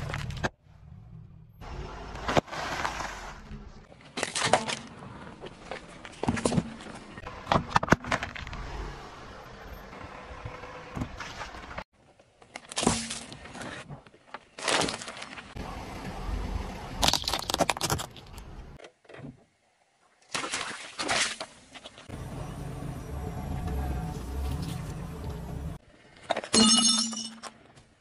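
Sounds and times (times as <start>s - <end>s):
low car rumble: 15.6s - 18.8s, 22.1s - 25.8s
tyres crushing packaging: 17.0s - 18.4s.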